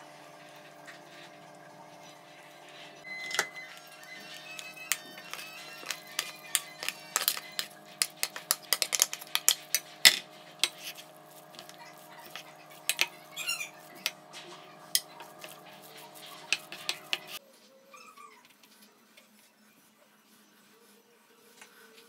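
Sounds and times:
wooden spoon scraping metal pot: 3.2s - 17.4s
stirring in ceramic bowl: 3.6s - 17.4s.

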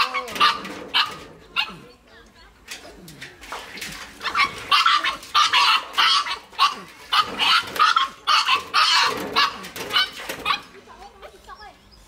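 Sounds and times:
puppy squealing and crying: 4.2s - 10.7s.

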